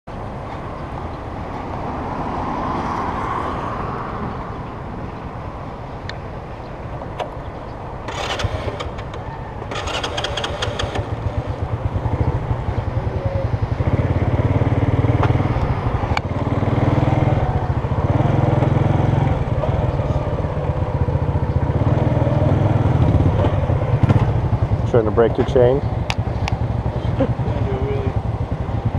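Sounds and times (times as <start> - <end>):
scooter engine running: 8.1 - 28.9.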